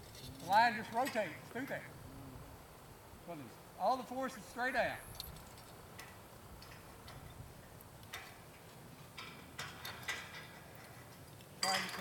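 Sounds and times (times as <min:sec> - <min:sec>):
faint irregular clicks and ticks: 0:05.0 - 0:12.0.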